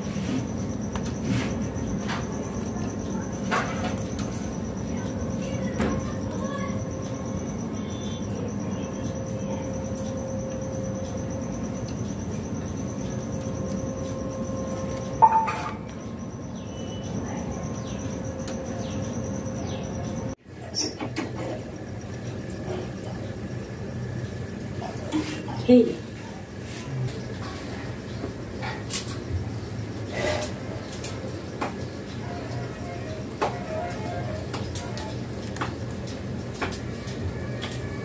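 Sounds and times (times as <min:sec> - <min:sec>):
high-pitched insect-like trill: 0:00.3 - 0:21.0.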